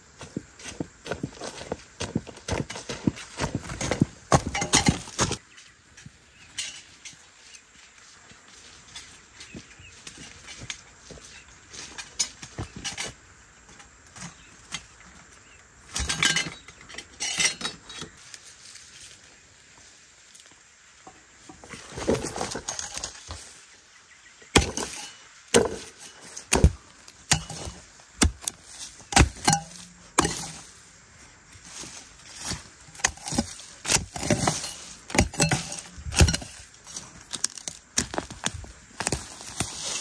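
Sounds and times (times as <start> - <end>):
leaves and stems rustling: 0.0 - 40.0
hoe chopping dry earth: 0.2 - 5.4, 24.5 - 30.8, 31.7 - 40.0.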